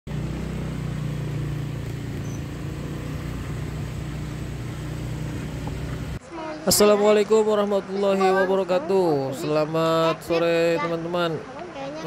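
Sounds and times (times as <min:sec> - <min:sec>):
motorcycle engine drone: 0:00.1 - 0:06.2
road and wind noise: 0:00.1 - 0:12.0.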